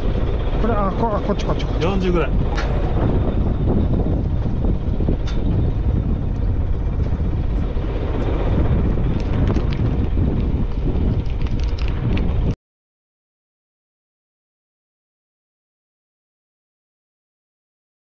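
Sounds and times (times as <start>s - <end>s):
boat engine rumbling: 0.0s - 12.6s
wind buffeting microphone: 0.0s - 12.6s.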